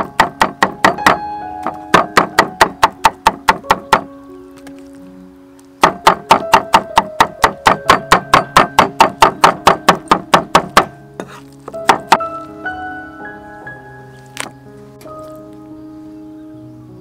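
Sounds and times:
cleaver chopping on wooden board: 0.0 - 4.1, 5.8 - 12.2.

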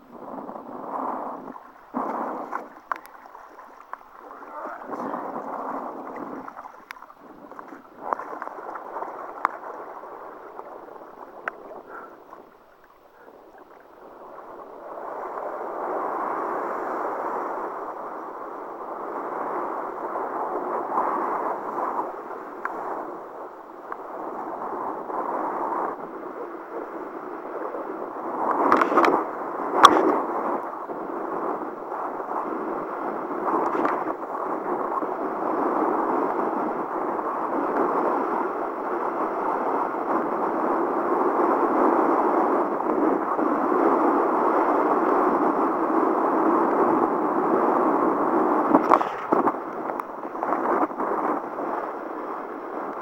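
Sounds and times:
kiteboard over choppy water: 0.0 - 53.0
rushing wind: 0.0 - 53.0.

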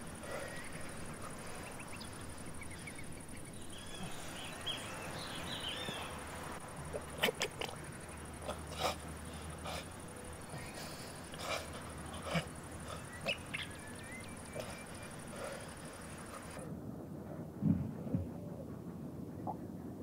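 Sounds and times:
birds chirping: 0.0 - 16.6
sharp animal calls: 6.9 - 16.6.

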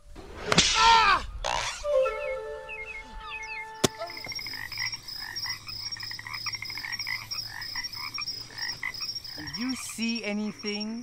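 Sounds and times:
frogs croaking: 3.2 - 11.0.

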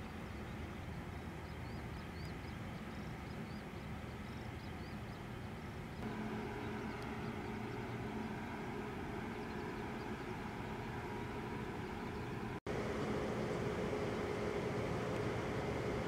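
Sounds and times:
low mechanical drone: 6.0 - 16.0.

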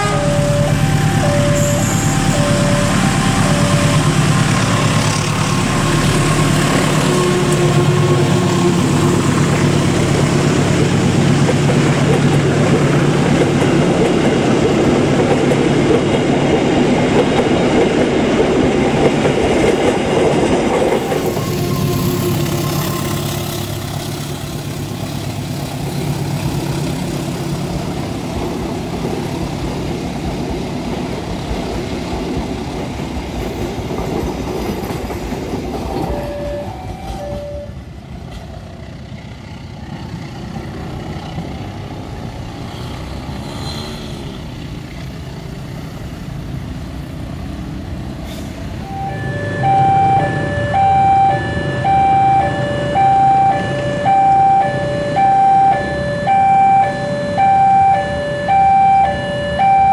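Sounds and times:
low diesel engine hum: 0.0 - 16.4
train wheels on rails: 0.0 - 59.9.

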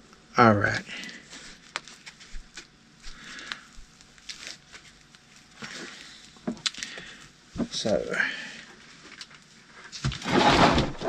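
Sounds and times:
foam sleeve rustling and clicking: 1.4 - 2.8, 3.4 - 7.0.

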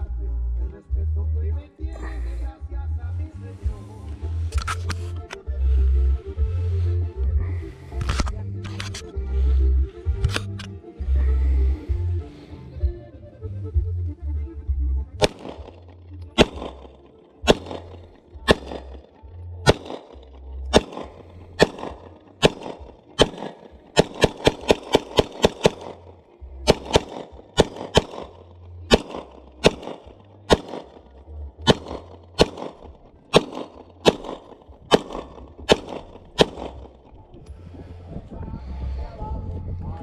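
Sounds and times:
pistol shots: 15.2 - 37.1.

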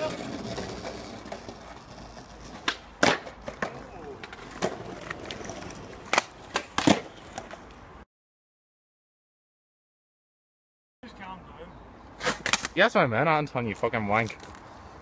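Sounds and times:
skateboard rolling over bricks: 0.0 - 7.7
skateboard clacking on ground: 0.0 - 7.8, 12.2 - 12.8.

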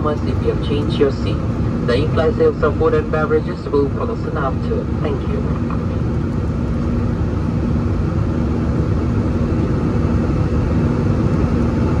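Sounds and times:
jet engines and airflow rushing: 0.0 - 12.0
steady low hum: 0.0 - 12.0.

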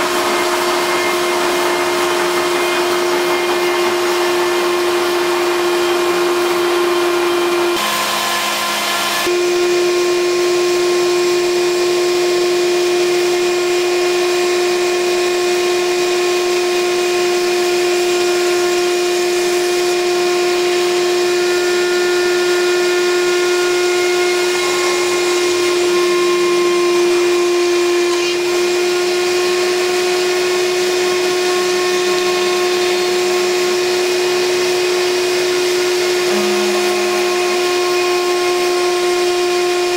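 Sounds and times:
vacuum cleaner rushing: 0.0 - 9.5, 19.1 - 39.9
router spindle motor whine: 0.0 - 39.9.

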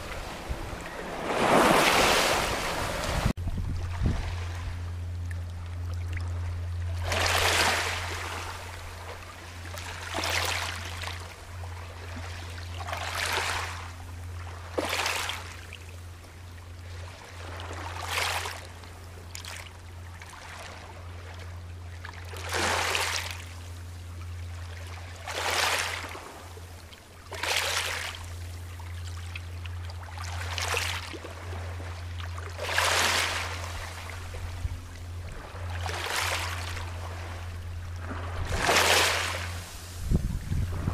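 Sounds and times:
waves washing over pebbles: 0.0 - 3.4, 7.0 - 8.6, 32.6 - 33.7, 35.4 - 37.3, 38.0 - 40.9
steady low hum: 0.0 - 40.9.

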